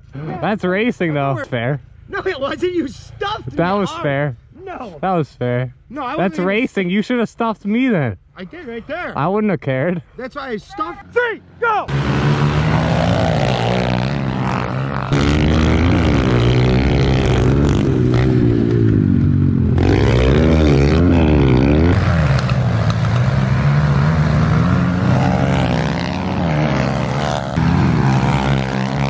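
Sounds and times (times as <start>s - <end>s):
small motorbike engines revving: 11.8s - 29.0s.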